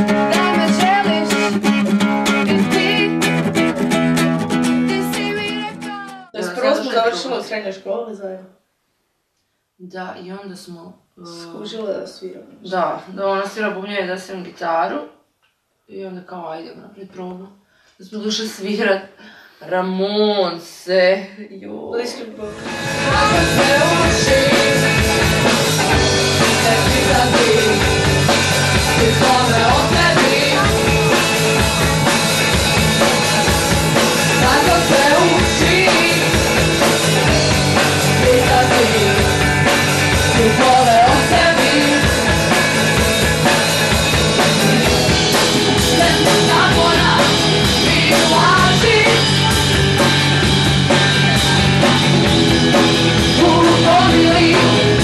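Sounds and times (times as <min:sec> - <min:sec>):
punk rock band playing: 0:00.0 - 0:06.4, 0:22.4 - 0:55.0.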